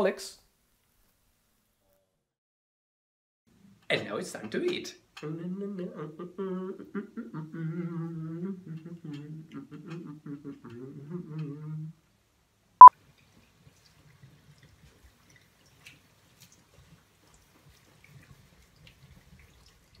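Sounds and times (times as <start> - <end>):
man humming: 5.2 - 12.0.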